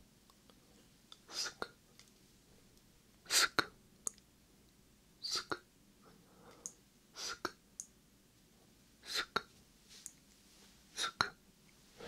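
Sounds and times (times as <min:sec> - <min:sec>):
whispered mouth hisses: 0:01.3 - 0:01.8, 0:03.3 - 0:03.7, 0:05.2 - 0:05.7, 0:07.2 - 0:07.6, 0:09.0 - 0:09.5, 0:11.0 - 0:11.4.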